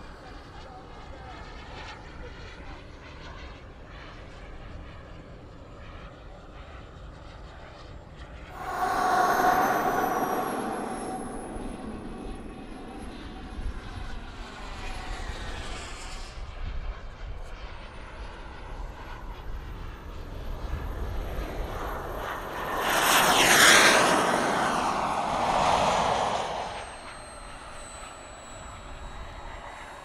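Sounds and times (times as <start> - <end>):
jet rushing past: 8.5 - 15.1, 22.0 - 28.2
jet turbine whine: 8.5 - 30.0.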